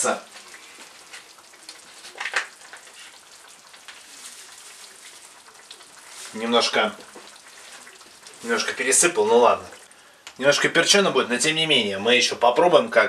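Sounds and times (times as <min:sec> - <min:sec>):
meat sizzling in a frying pan: 0:00.0 - 0:10.0.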